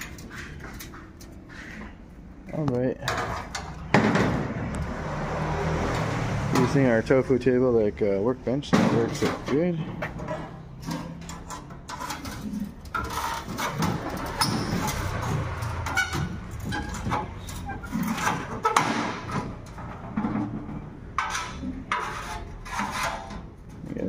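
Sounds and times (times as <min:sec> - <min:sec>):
sheet metal knocks and clatter: 0:03.0 - 0:04.7, 0:08.7 - 0:23.8.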